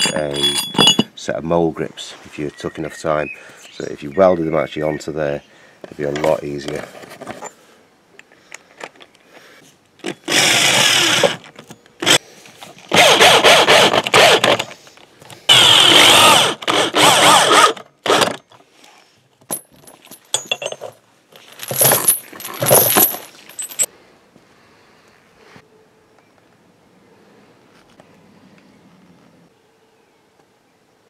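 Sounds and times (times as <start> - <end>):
electric drill driving bolts: 10.0 - 12.2, 12.9 - 14.8, 15.5 - 18.4.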